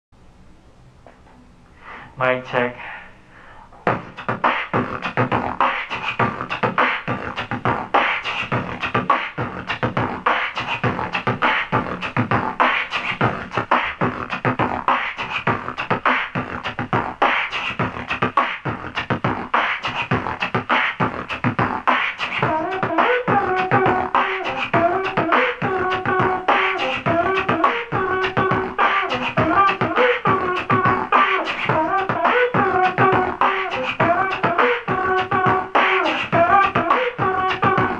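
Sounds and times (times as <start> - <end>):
beatboxing: 1.9 - 37.9
pitched vocal line: 19.8 - 37.9.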